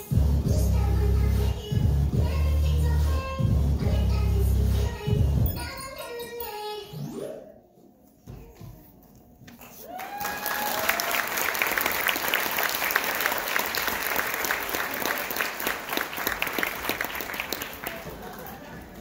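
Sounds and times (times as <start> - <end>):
audience clapping: 9.6 - 19.0
people cheering: 9.7 - 19.0.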